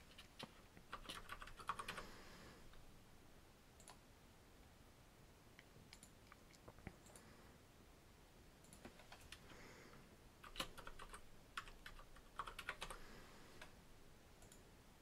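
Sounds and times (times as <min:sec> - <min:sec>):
keyboard keystrokes: 0:00.1 - 0:02.0, 0:10.4 - 0:13.0.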